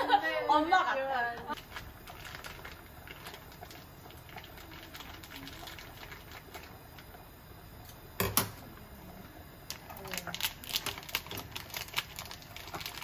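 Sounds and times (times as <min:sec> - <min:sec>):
plastic crinkling: 0:01.5 - 0:07.1, 0:09.7 - 0:13.0.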